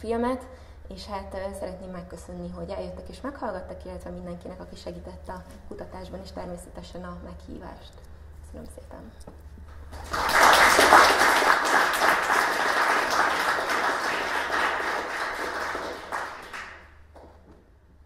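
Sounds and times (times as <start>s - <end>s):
audience applauding: 9.9s - 17.2s.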